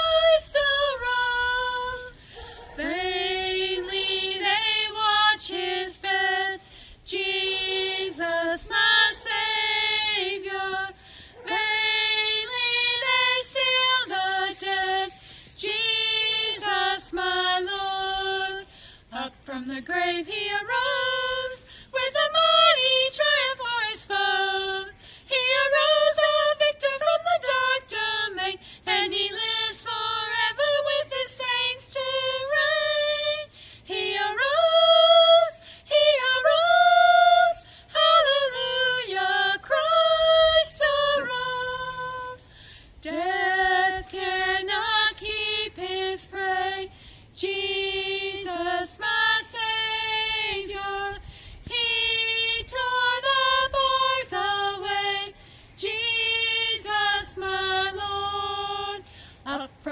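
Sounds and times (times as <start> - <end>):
woman singing a hymn: 0.0 - 59.9.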